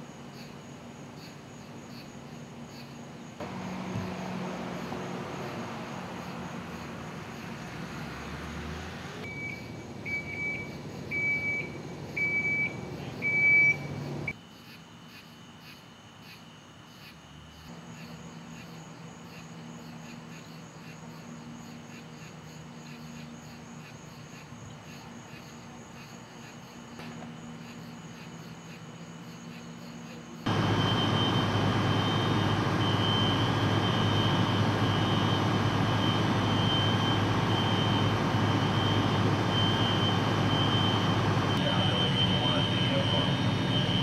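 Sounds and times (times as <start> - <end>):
faint crickets chirping: 0.0 - 44.0
fire engine and pump droning: 3.4 - 14.4, 30.4 - 44.0
pulsing high tone: 30.5 - 44.0.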